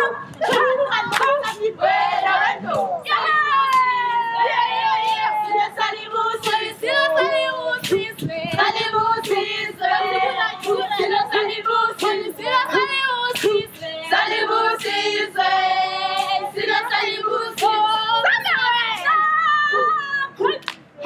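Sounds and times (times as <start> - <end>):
women singing together: 0.0 - 20.7.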